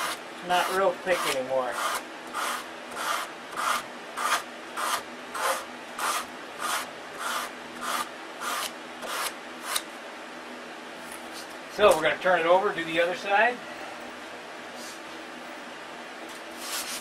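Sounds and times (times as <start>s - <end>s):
sanding block rubbing wood: 0.0s - 9.8s.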